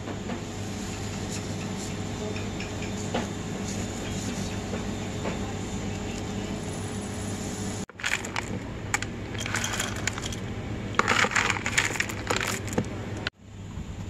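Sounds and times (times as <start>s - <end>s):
chocolate buttons clattering into jar: 7.9s - 12.9s.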